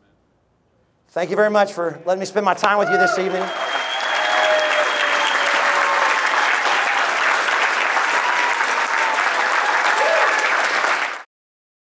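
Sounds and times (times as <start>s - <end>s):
audience applauding: 2.8s - 11.3s.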